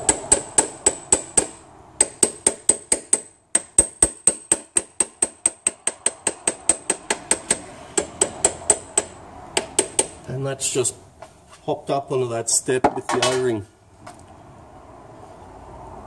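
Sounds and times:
hammer tapping on metal: 0.0 - 10.3.

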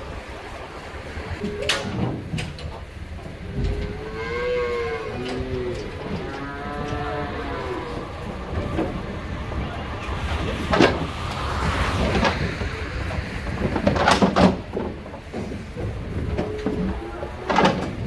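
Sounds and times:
low rumble: 0.0 - 18.0
metal trailer panels clanking: 1.4 - 9.2, 13.5 - 18.0.

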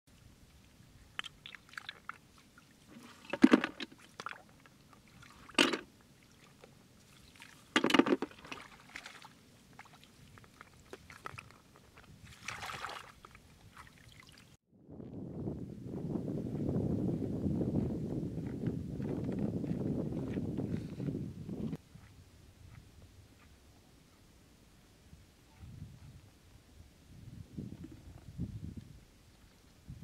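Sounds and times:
water drips: 0.5 - 2.8
hands splashing in water: 12.2 - 14.4.

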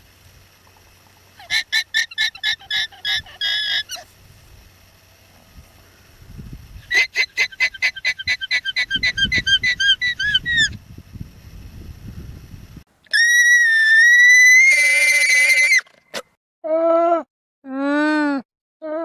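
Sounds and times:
alpaca squealing: 1.4 - 4.1, 6.9 - 10.8, 13.1 - 15.9
alpaca long high call: 13.1 - 15.8.

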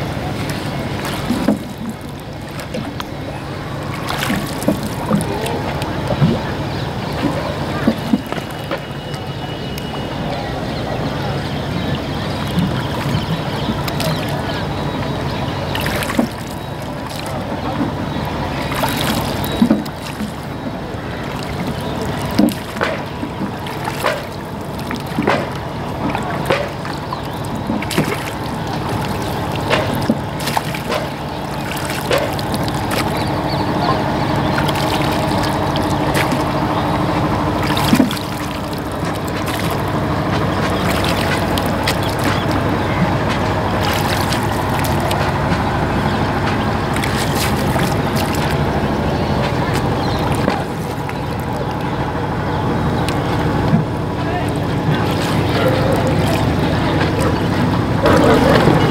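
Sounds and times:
water sloshing along hull: 0.0 - 58.9
oars knocking in oarlocks: 0.4 - 3.2, 3.8 - 6.4, 7.1 - 9.2, 15.7 - 18.0, 18.6 - 51.8.

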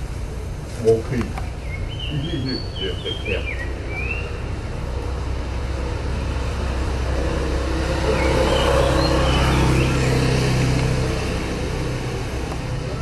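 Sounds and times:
vehicle engine running: 0.0 - 13.0
high chirp: 7.8 - 10.5.

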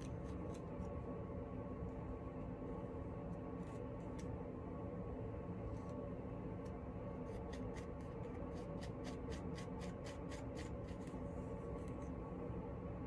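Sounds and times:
plastic comb scratching through hair: 7.2 - 11.2.

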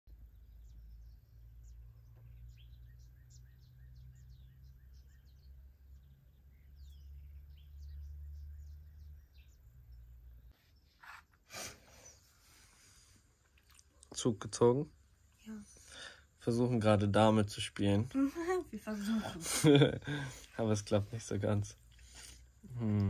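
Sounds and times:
birds chirping and calling: 0.1 - 11.2.

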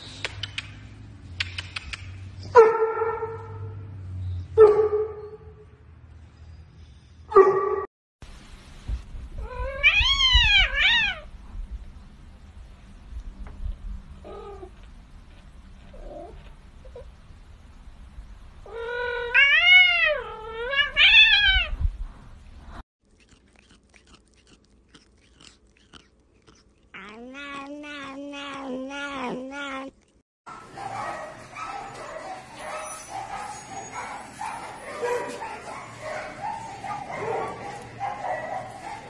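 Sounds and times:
cat meowing: 9.4 - 11.3, 18.7 - 21.8, 26.9 - 30.1.

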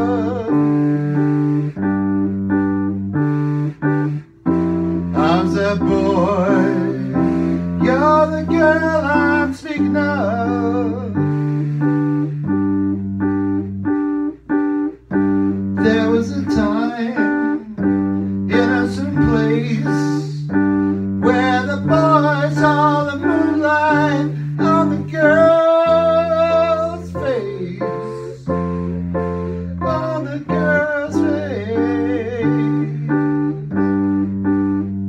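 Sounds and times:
man singing wordlessly: 0.0 - 1.4, 5.1 - 11.9, 15.7 - 34.2
electric piano chords: 0.0 - 35.0.

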